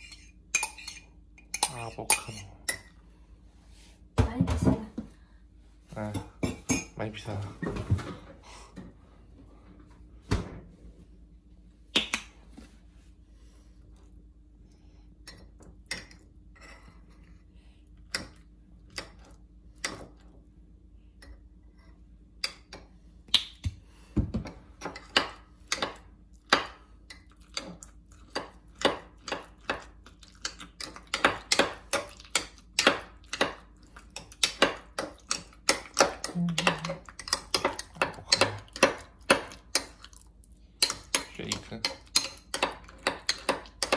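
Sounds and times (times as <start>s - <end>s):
faint steady hum: 0.0s - 43.9s.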